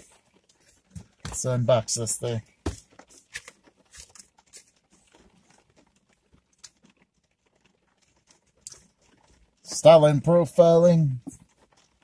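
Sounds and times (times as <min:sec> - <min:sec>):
cardboard box rustling and crinkling: 0:00.0 - 0:08.4.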